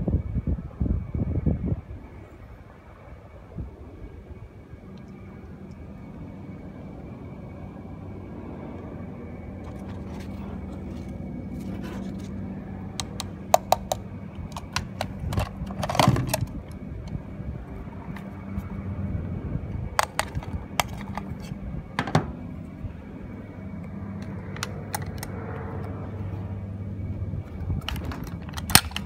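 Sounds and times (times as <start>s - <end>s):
steady low hum: 0.0s - 29.0s
rifle rattle: 27.8s - 29.0s
toy rifle clicks and clacks: 27.8s - 29.0s.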